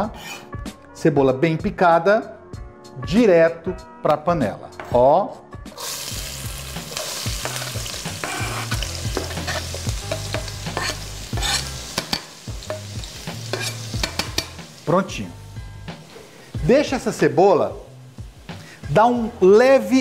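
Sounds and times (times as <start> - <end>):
knife scraping cutting board: 0.0 - 0.6, 8.2 - 9.8, 10.7 - 12.1, 13.4 - 13.9
onion sizzling in hot oil: 5.7 - 20.0.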